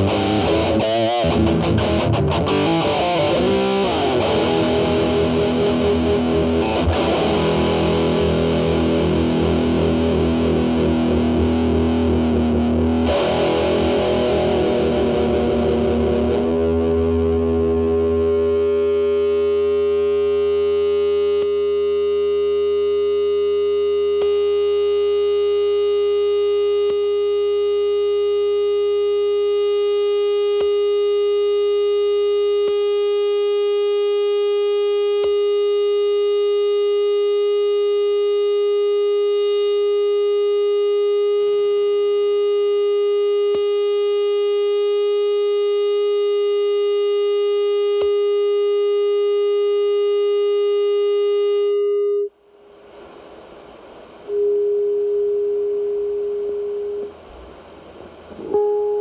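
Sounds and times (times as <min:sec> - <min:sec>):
distorted electric guitar note: 0:00.0 - 0:25.9, 0:56.1 - 0:59.0.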